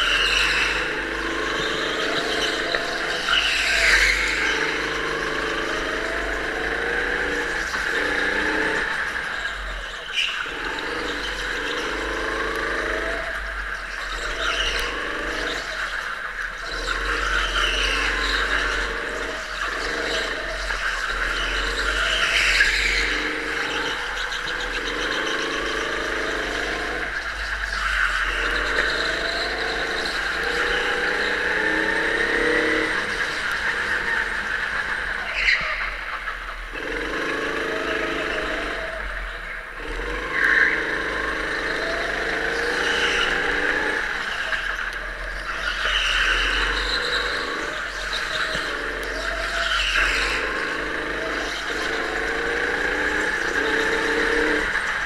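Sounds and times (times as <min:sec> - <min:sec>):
go-kart engine revving: 0:00.0 - 0:55.0.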